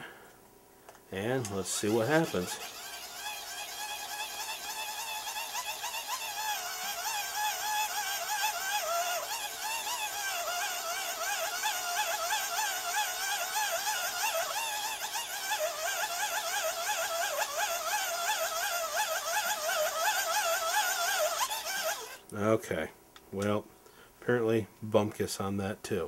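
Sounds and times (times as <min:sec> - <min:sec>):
hand-cranked dynamo whining: 0:01.4 - 0:22.2.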